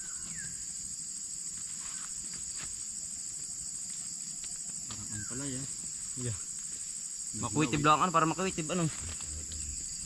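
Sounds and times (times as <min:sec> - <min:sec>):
chorus of insects: 0:00.0 - 0:10.0.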